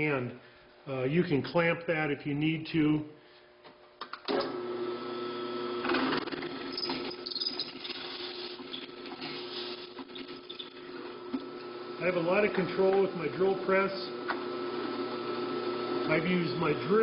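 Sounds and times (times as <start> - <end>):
drill press motor running: 4.3 - 17.0.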